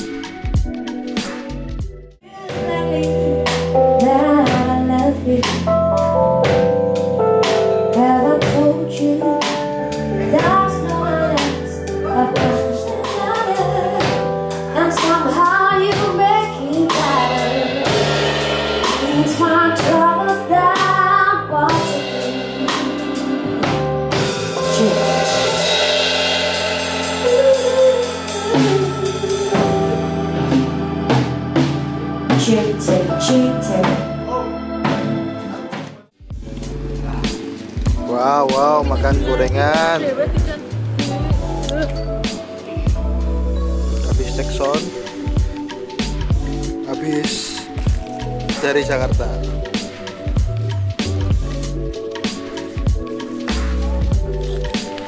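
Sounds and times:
bass guitar: 0.0 - 55.0
drum kit: 0.0 - 55.0
person singing: 7.9 - 46.9
cymbals washing: 16.0 - 21.1, 21.7 - 34.1, 36.3 - 55.0.

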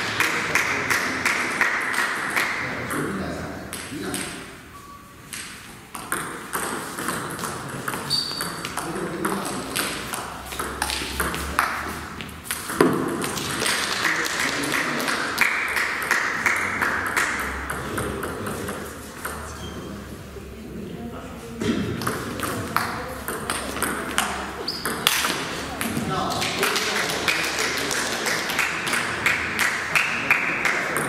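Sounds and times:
table tennis ball clicking: 5.3 - 11.7.

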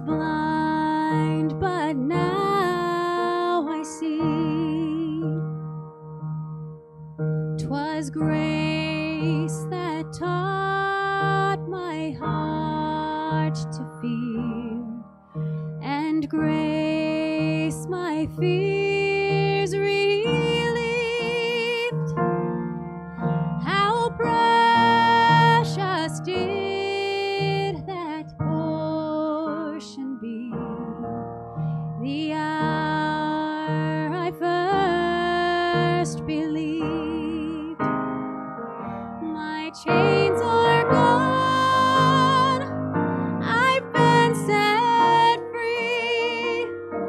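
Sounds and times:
piano accompaniment: 0.0 - 47.0
solo singer with vibrato: 7.6 - 15.0, 15.8 - 22.1, 23.6 - 31.1, 32.0 - 37.9, 39.2 - 42.8, 43.4 - 46.8.

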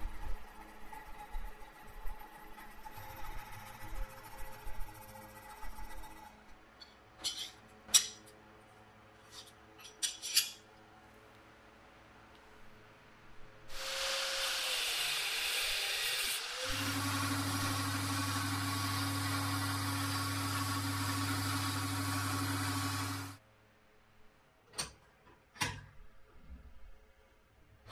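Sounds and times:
belt grinder motor hum: 16.7 - 23.4.

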